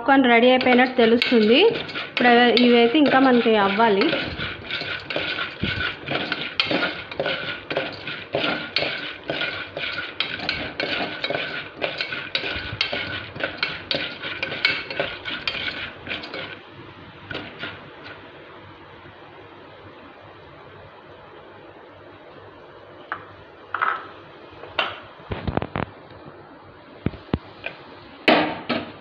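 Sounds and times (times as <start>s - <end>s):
spoon stirring kernels in pot: 0.2s - 18.2s.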